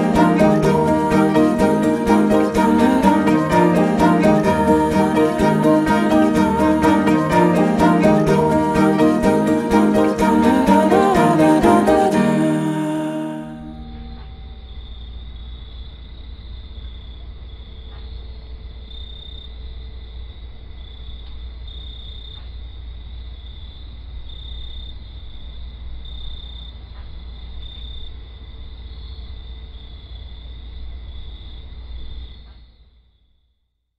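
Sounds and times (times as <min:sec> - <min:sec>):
crickets chirping: 0:13.8 - 0:33.2.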